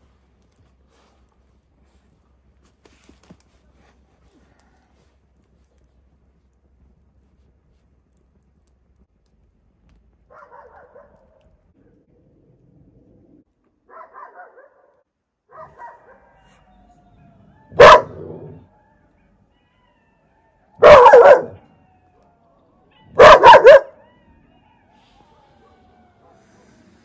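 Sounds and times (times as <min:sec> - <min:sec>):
dog barking: 0:10.3 - 0:11.4, 0:13.9 - 0:16.6, 0:17.7 - 0:18.7, 0:20.8 - 0:21.7, 0:22.9 - 0:24.0.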